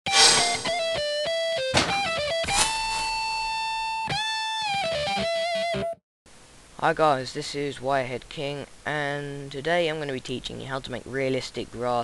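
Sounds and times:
electric guitar lead melody: 0.6s - 2.4s, 3.8s - 6.0s.

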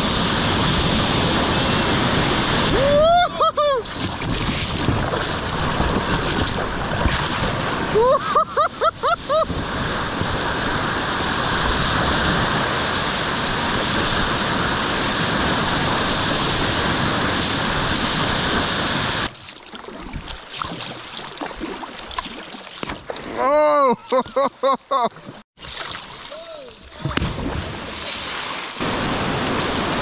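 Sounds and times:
person whooping yells: 2.7s - 3.8s, 23.3s - 24.2s
whitewater rushing: 26.0s - 30.0s.

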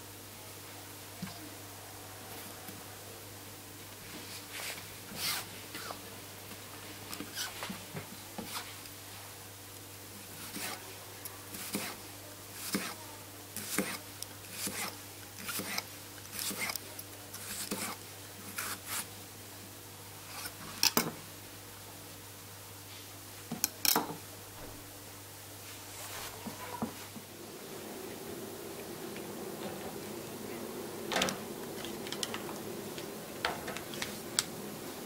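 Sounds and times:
knife slicing cucumber on board: 11.6s - 12.0s, 12.6s - 13.0s, 13.6s - 16.8s.

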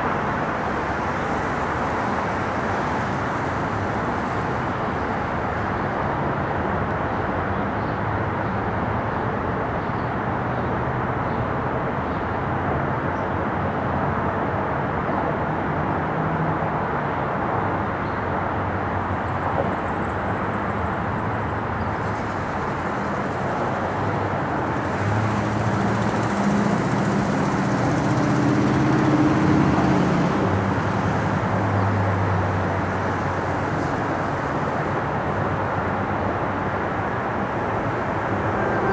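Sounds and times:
jet engine noise: 32.8s - 38.9s.

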